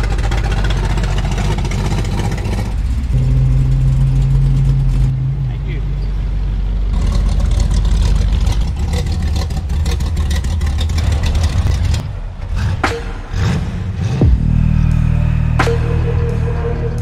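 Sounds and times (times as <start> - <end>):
car engines rumbling past: 0.0 - 17.0.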